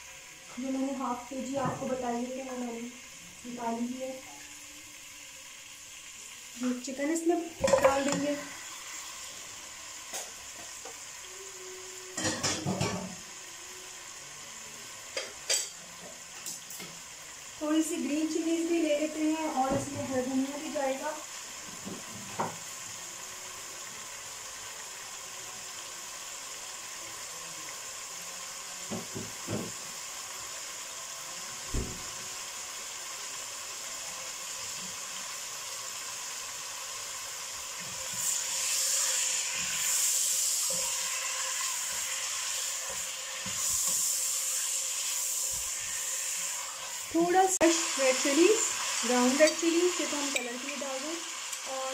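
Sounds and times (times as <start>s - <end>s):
chicken sizzling in hot oil: 0.0s - 51.9s.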